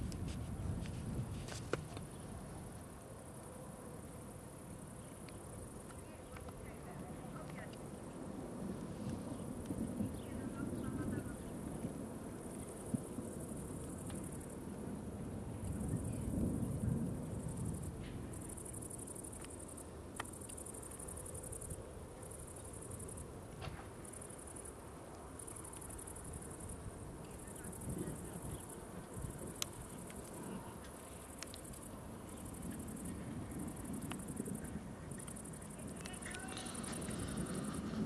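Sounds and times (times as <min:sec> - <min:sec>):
wind rumble on microphone: 0:00.0 - 0:03.4, 0:04.0 - 0:24.5, 0:25.5 - 0:38.0
crickets singing: 0:25.4 - 0:38.0.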